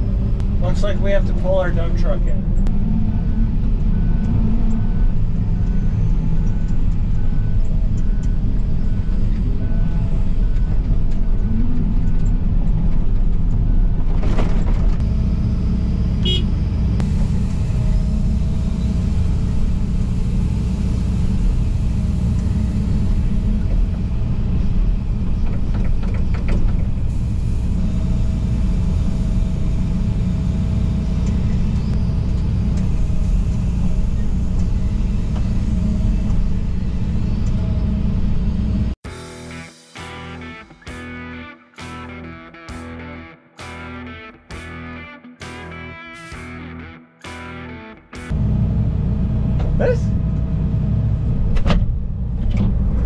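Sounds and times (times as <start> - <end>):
hydraulics working: 0.0 - 39.0
excavator diesel engine running: 0.0 - 39.5, 48.2 - 53.0
truck reverse beeper: 1.8 - 14.0, 15.0 - 25.5, 26.2 - 39.0.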